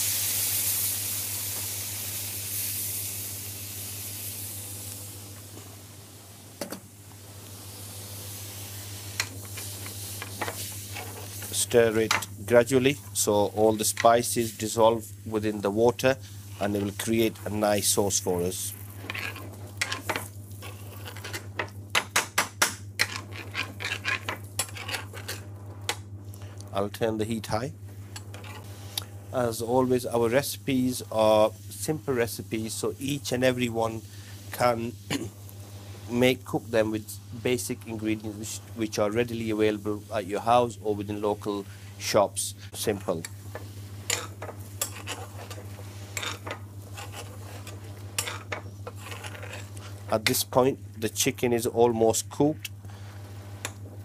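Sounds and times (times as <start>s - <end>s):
hot pan hissing and sizzling: 0.0s - 6.5s, 7.1s - 12.2s
steady low hum: 0.8s - 54.0s
metal spoon scraping frying pan: 18.9s - 21.5s, 23.0s - 25.4s, 43.5s - 50.1s.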